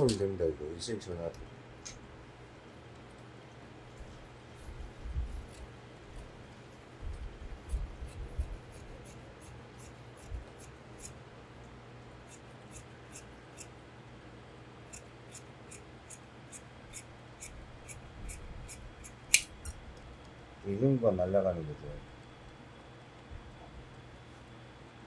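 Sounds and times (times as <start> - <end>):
shears snipping fabric: 3.9 - 11.2, 12.2 - 13.8, 14.8 - 19.8.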